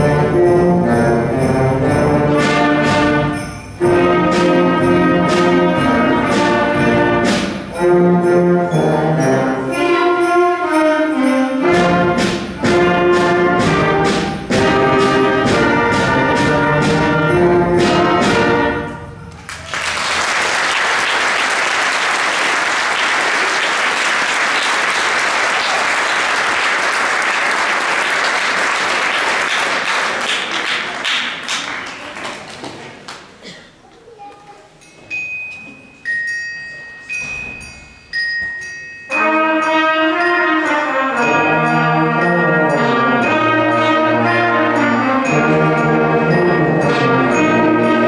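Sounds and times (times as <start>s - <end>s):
concert band playing: 0.0s - 19.4s, 39.1s - 48.0s
audience applause: 19.3s - 33.3s.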